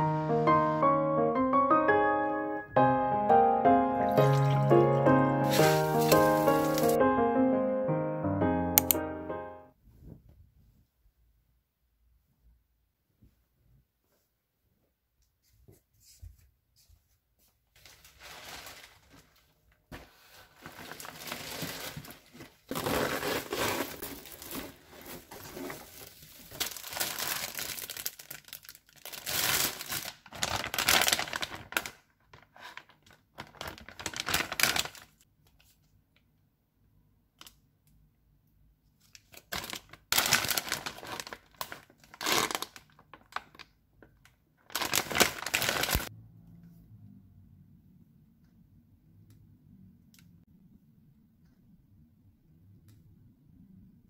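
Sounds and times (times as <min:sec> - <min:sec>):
plastic bags crinkling and rustling: 0:05.4 - 0:07.0, 0:17.7 - 0:35.2, 0:39.0 - 0:46.1.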